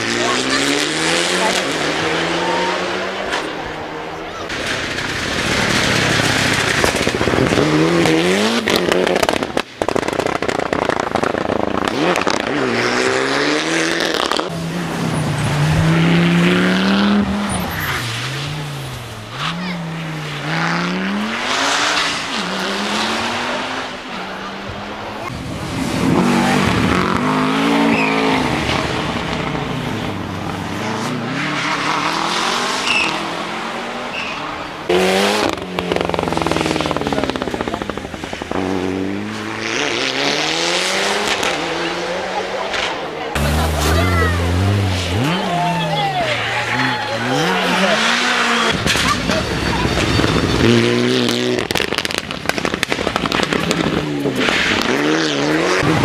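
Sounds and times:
rally car engines revving: 0.0 - 56.0.

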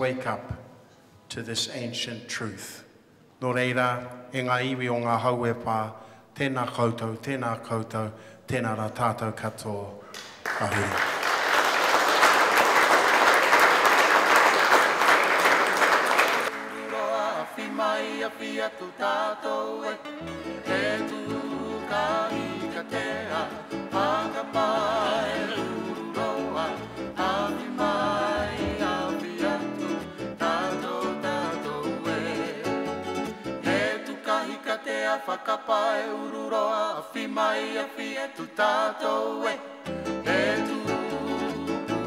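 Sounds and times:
audience applause: 10.4 - 17.0
person singing: 16.7 - 42.0
guitar: 20.0 - 33.9, 39.9 - 42.0
bass line: 20.1 - 33.8.

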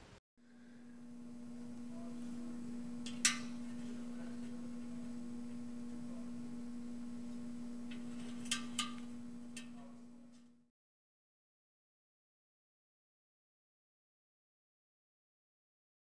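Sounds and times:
steady single-pitched hum: 0.1 - 10.7.

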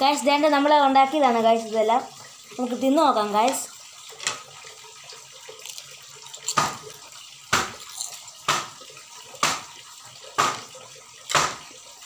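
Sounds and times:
crisp chips crunching: 5.5 - 8.4.

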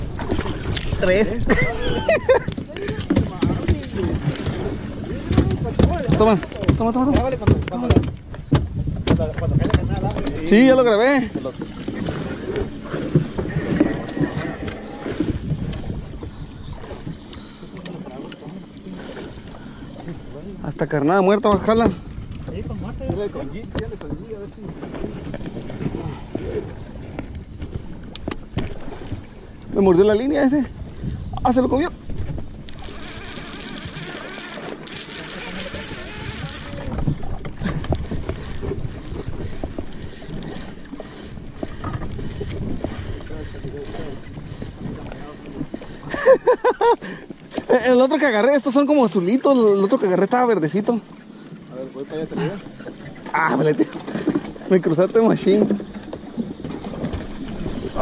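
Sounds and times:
wind buffeting microphone: 0.0 - 17.3, 19.0 - 47.8
water slapping boat hull: 0.0 - 58.0
fishing reel clicking: 32.6 - 37.0, 37.7 - 44.3.

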